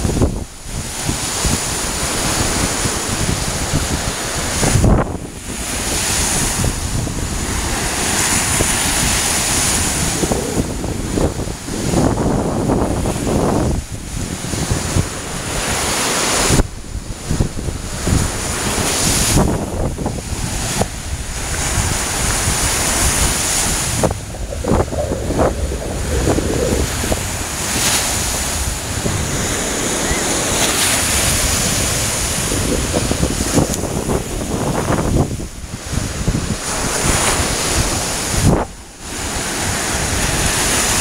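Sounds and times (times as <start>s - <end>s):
surf breaking on a beach: 0.0s - 41.0s
wind buffeting microphone: 0.0s - 41.0s.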